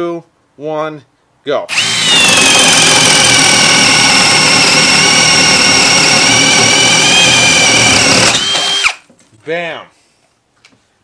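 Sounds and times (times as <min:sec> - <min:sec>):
drill whining through wood: 0:01.7 - 0:09.0.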